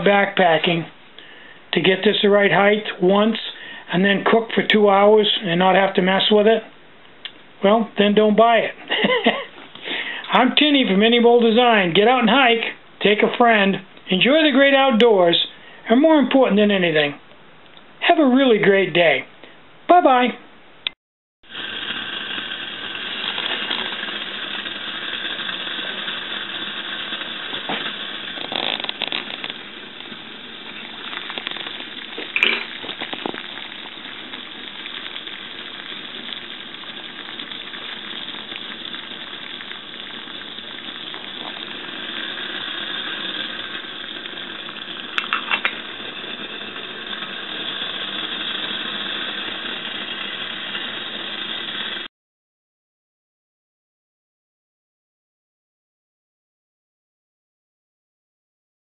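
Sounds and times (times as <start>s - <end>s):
water boiling with bubbling hiss: 0.0s - 6.6s, 7.6s - 16.9s, 21.4s - 52.1s.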